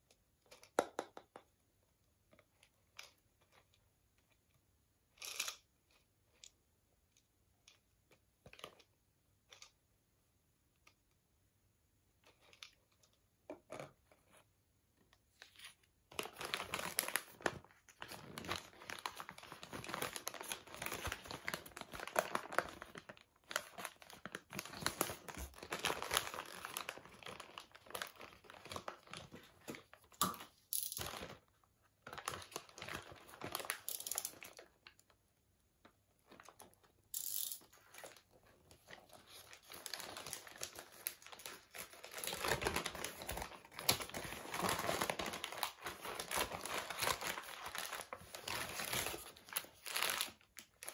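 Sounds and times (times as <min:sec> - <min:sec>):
paper bag crinkling and rustling: 0:16.2 - 0:30.0, 0:38.0 - 0:50.9.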